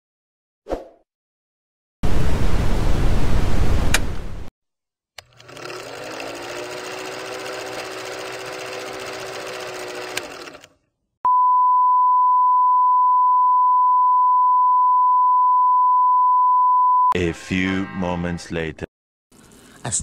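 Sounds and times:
film projector whirring: 0:05.2 - 0:10.8.

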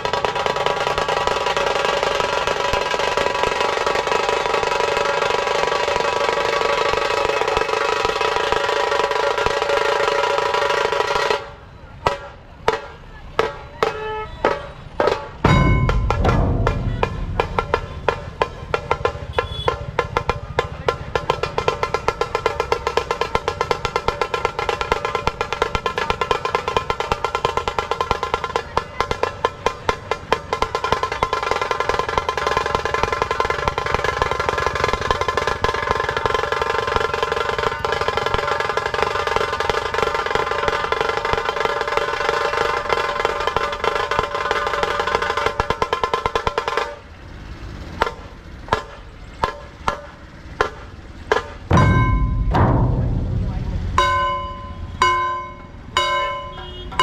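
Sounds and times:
single drum strokes: 0:14.4 - 0:20.4, 0:51.4 - 0:55.2
rapid drum roll over drum beats: 0:15.0 - 0:47.0, 0:48.0 - 0:55.5.

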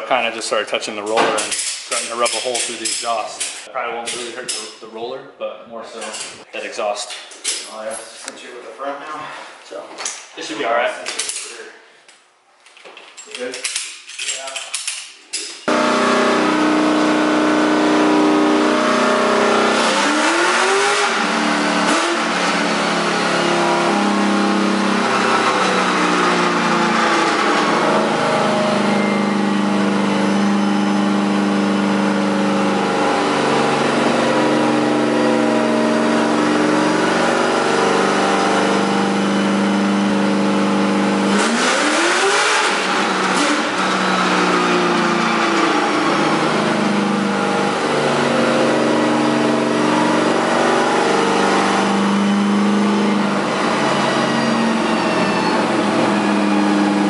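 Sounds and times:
car engine running on dyno: 0:15.7 - 0:57.0.

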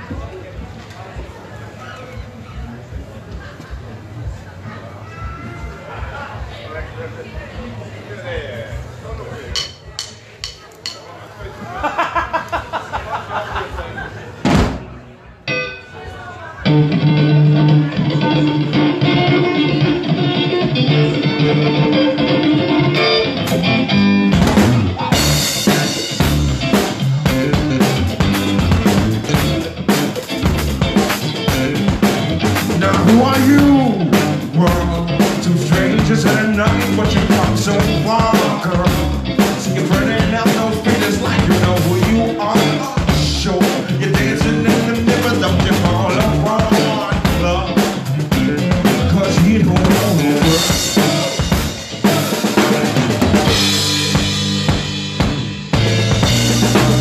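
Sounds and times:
drum kit beat with rimshots: 0:08.7 - 0:11.1, 0:14.4 - 0:15.8, 0:16.7 - 0:57.0
pitched band instruments: 0:09.5 - 0:11.1, 0:14.4 - 0:57.0.

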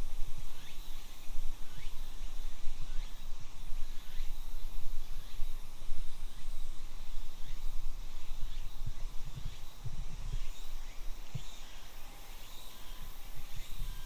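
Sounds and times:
high insect tone: 0:00.0 - 0:14.0
faint bird chirps: 0:06.2 - 0:14.0.

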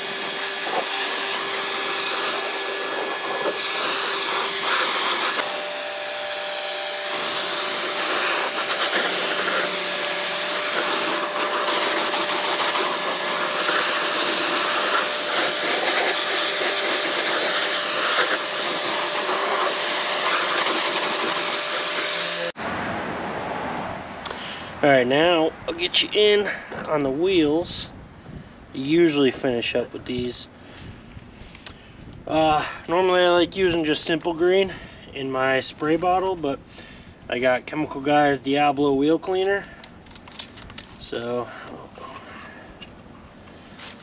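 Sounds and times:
pressure washer motor whine: 0:00.0 - 0:22.6
water spray hissing: 0:00.0 - 0:22.6.

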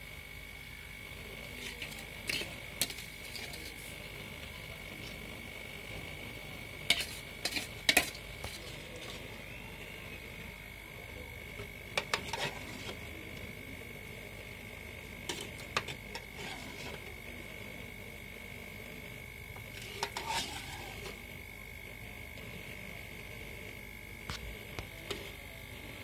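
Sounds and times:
high-pitched whine: 0:07.0 - 0:14.6.

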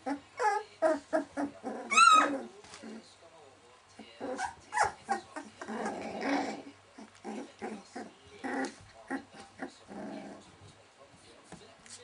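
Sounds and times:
puppies whimpering and squeaking: 0:00.0 - 0:02.6, 0:04.2 - 0:09.7.

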